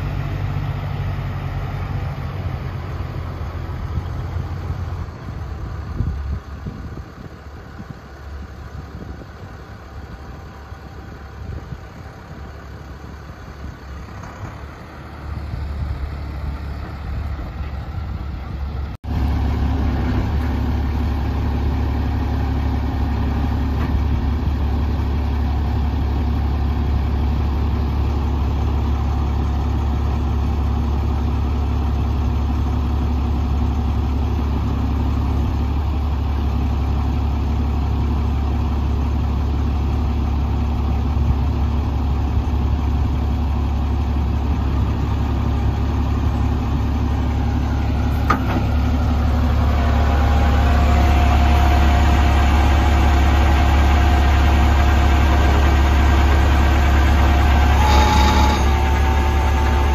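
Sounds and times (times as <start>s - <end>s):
diesel engine idling: 0.0s - 59.9s
steady whine: 42.4s - 59.9s.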